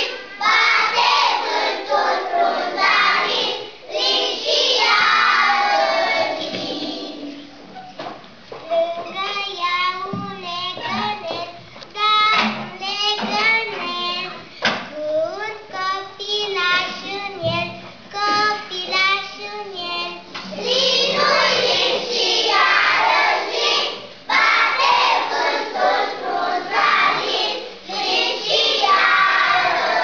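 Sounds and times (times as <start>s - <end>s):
children singing into a microphone: 0.0s - 7.8s, 8.7s - 30.0s.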